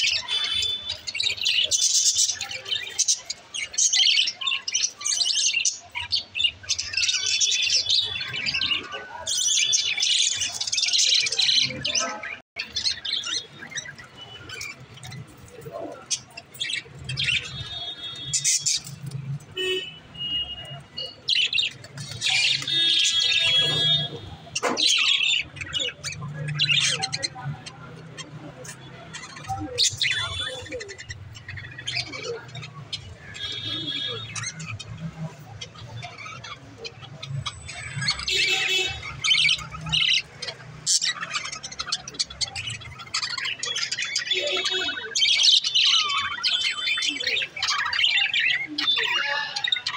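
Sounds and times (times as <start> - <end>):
budgerigars chattering and squawking: 0.0 - 20.0, 20.6 - 49.9.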